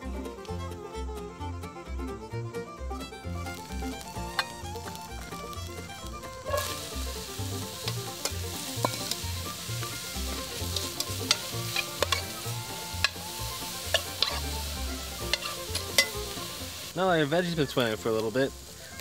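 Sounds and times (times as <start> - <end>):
background music: 0.0 - 19.0
vegetables sizzling in a pot: 3.4 - 19.0
utensil scraping a pot: 3.5 - 5.6, 6.2 - 17.0.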